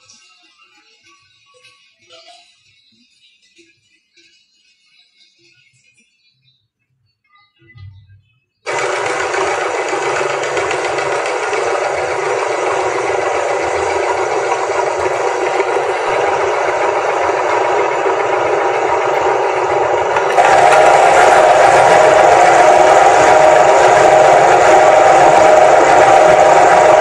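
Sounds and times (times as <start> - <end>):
electric meat grinder running: 8.7 - 27.0.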